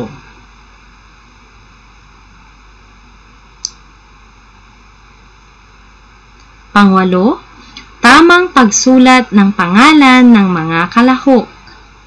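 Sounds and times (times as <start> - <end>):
faint electrical whine: 0.0 - 12.0
low steady hiss: 0.0 - 12.0
short click: 3.6 - 3.8.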